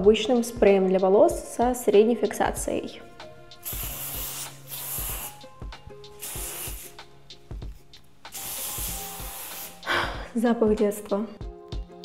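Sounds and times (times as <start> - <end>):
background music with steady beat: 0.0 - 12.0
aerosol hairspray hissing: 3.6 - 7.1, 8.3 - 10.3.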